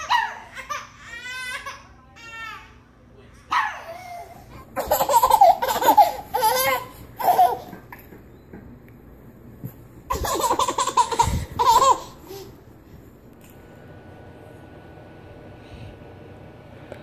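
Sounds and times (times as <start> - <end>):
baby laughing: 3.9 - 8.0, 10.1 - 12.6.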